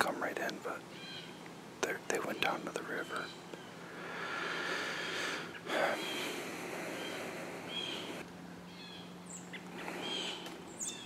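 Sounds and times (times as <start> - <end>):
background hiss: 0.0 - 11.0
bird chirps: 0.9 - 1.4, 2.0 - 3.9, 5.5 - 11.0
breathy puff of air: 3.9 - 8.2.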